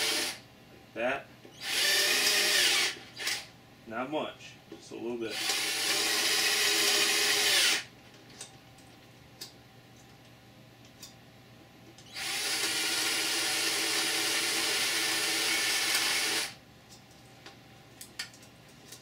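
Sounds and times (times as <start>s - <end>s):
power drill running: 0.0s - 0.4s, 1.6s - 3.5s, 5.3s - 7.9s, 12.0s - 16.6s.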